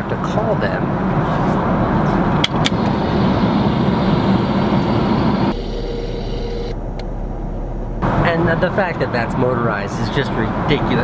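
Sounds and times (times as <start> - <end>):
airliner cabin engine rush: 1.2 - 5.6.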